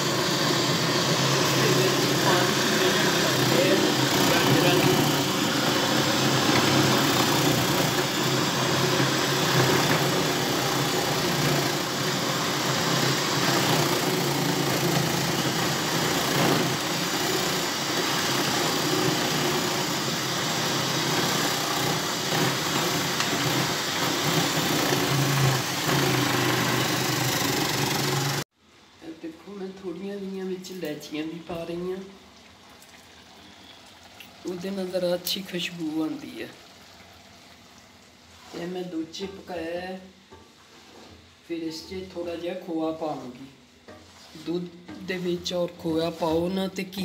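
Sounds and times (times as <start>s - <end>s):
food processor motor running: 0.0s - 28.5s.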